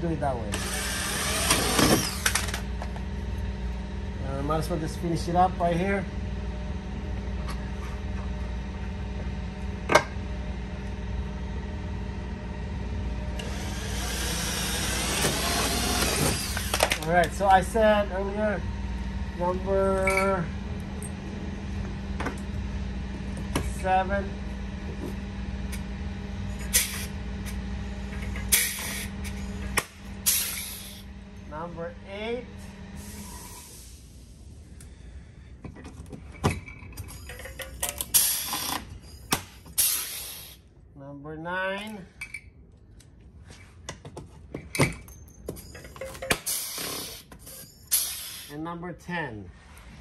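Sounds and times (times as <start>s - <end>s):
low machine hum: 0.0s - 50.0s
pneumatic rivet gun snaps: 1.5s - 2.6s
air exhaust hiss: 26.6s - 27.2s, 28.5s - 29.4s, 30.2s - 31.1s, 32.6s - 35.5s, 38.1s - 38.8s, 39.6s - 40.7s, 46.4s - 48.6s
hiss: 26.8s - 27.1s, 28.5s - 29.1s, 39.8s - 40.6s, 47.9s - 48.5s.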